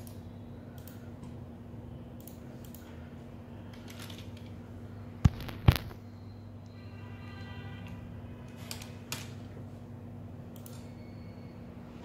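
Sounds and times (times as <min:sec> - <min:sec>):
computer mouse clicking: 0:00.0 - 0:01.4, 0:02.2 - 0:02.9
steady low hum: 0:00.0 - 0:12.0.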